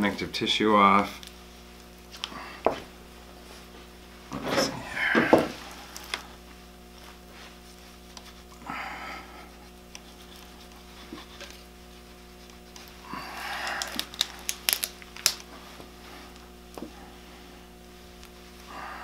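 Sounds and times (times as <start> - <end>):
steady low hum: 0.0 - 19.0
knife scraping bone: 9.9 - 14.8.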